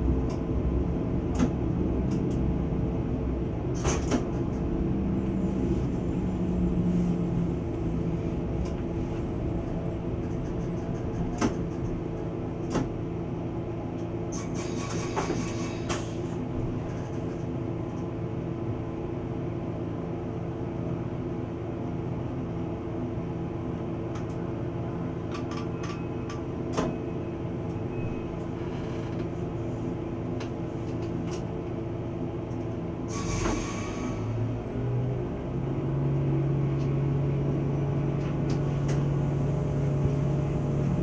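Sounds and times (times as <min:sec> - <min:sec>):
diesel engine humming: 0:00.0 - 0:20.0, 0:32.9 - 0:41.0
sharp clicks and knocks: 0:10.2 - 0:12.9.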